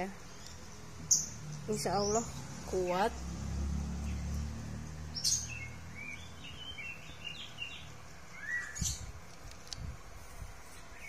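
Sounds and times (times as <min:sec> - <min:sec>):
small bird chirping: 0:00.0 - 0:03.3, 0:04.0 - 0:09.2.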